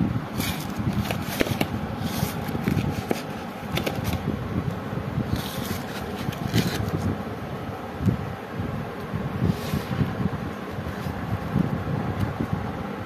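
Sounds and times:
steady low rumble: 0.0s - 13.0s
cardboard box scraping and rustling: 0.3s - 4.3s, 5.2s - 7.1s, 9.5s - 10.0s.

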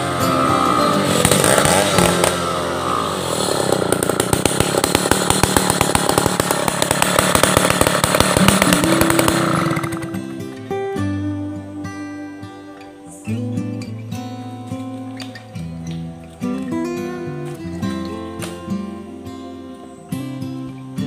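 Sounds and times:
chainsaw cutting log at high revs: 0.0s - 10.2s.

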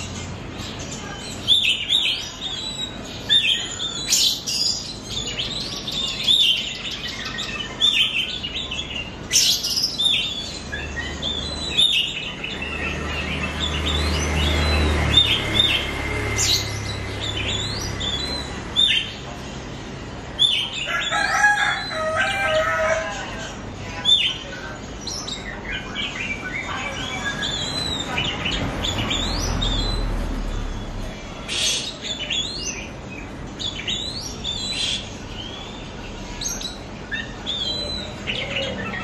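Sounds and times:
bird whistling and chirping: 9.3s - 19.1s, 33.6s - 39.0s.

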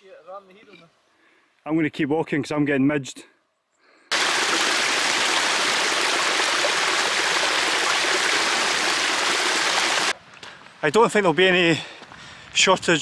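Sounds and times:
stream cascading over rocks: 4.1s - 10.1s.

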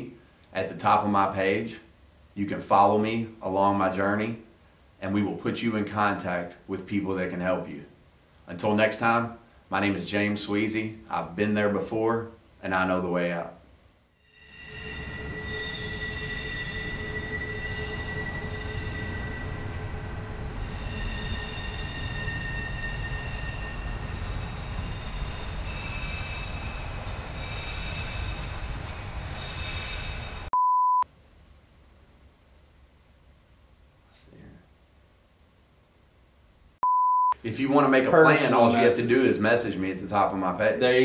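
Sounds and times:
wheel squeal: 14.2s - 30.5s
freight train rumbling past: 15.4s - 30.5s
short loud beep: 30.5s - 31.0s, 36.8s - 37.4s.

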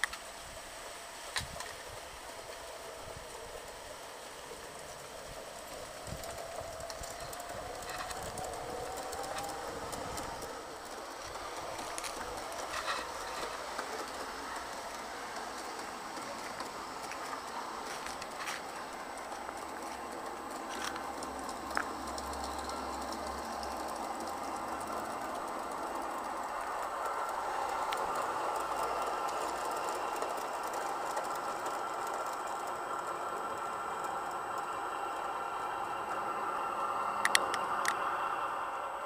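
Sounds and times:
model train wheels rolling: 0.0s - 39.0s
thin rising whine: 0.0s - 39.0s
sharp clicks: 37.2s - 38.0s.

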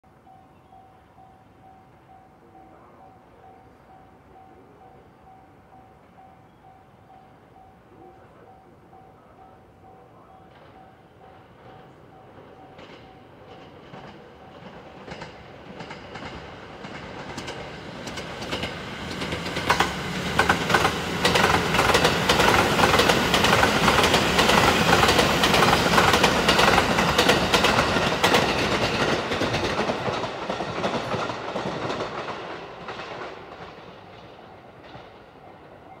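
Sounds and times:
train passing: 0.1s - 36.0s
wheels clacking over rail joints: 10.5s - 35.3s.

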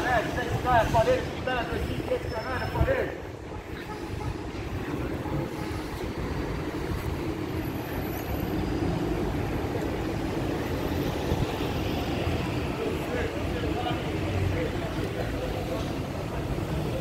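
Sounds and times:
low rumble of traffic: 0.0s - 17.0s.

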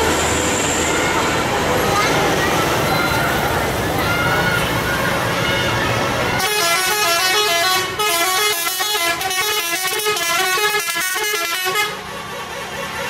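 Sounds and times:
multi-tone bus horn tune: 6.3s - 13.0s.

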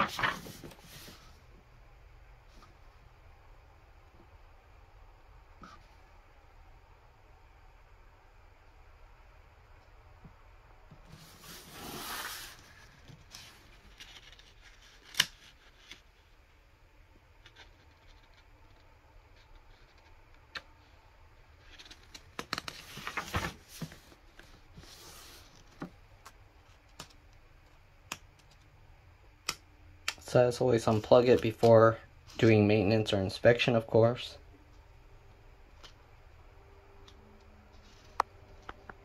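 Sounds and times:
booklet pages rustling: 0.0s - 1.3s, 21.6s - 25.9s.

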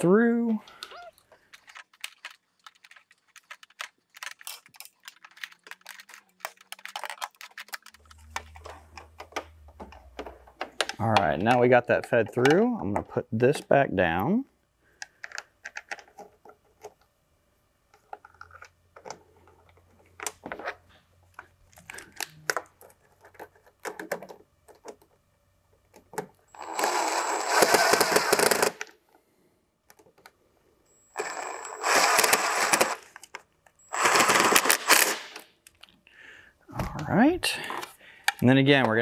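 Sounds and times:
plastic and metal parts clicking: 0.7s - 12.7s, 15.0s - 17.0s, 21.4s - 25.2s
power driver whining: 31.1s - 33.1s.

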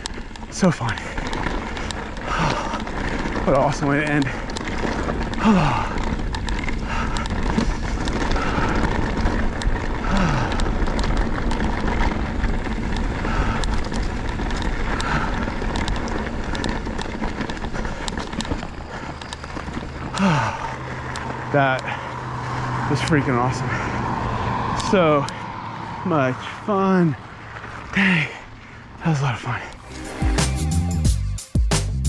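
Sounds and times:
sharp rattling clicks: 0.0s - 25.4s
wind noise: 0.0s - 26.6s
bike tyres rolling over rocks: 0.0s - 30.0s.

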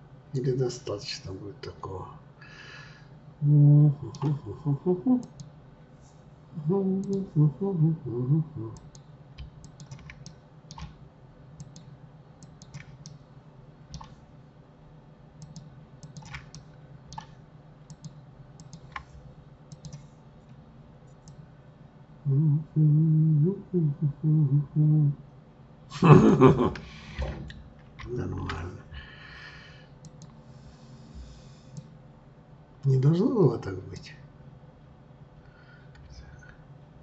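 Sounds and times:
faint steady hum: 0.0s - 37.0s
man humming: 3.4s - 5.4s, 6.5s - 8.9s, 22.2s - 25.2s
computer mouse and keyboard clicks: 8.8s - 11.0s, 11.6s - 13.2s, 13.9s - 14.2s, 15.4s - 20.1s.

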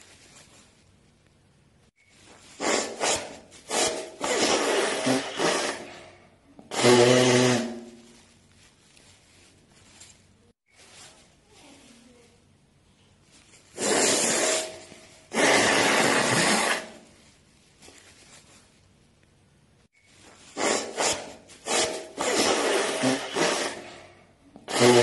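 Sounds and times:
person blowing nose: 2.5s - 5.9s, 6.7s - 8.1s, 13.7s - 17.1s, 20.4s - 24.1s, 24.7s - 25.0s.

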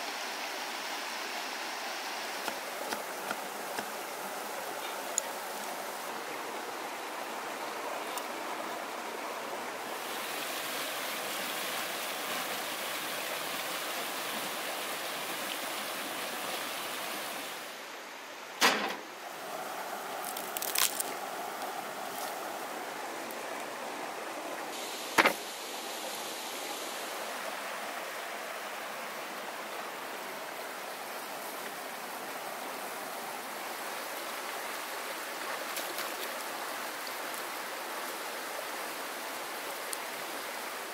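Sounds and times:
river water rushing: 0.0s - 40.9s
sharp knocks: 25.2s - 25.4s.

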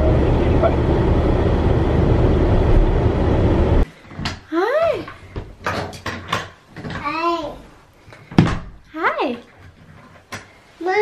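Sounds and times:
car cabin road rumble: 0.0s - 3.8s.

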